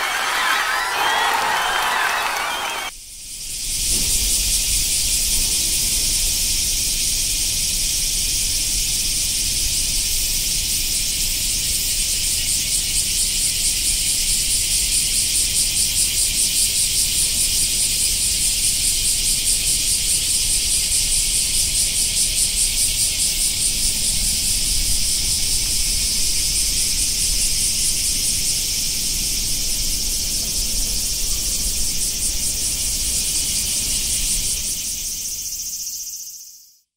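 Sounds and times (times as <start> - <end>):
cicadas buzzing: 30.5 - 36.7.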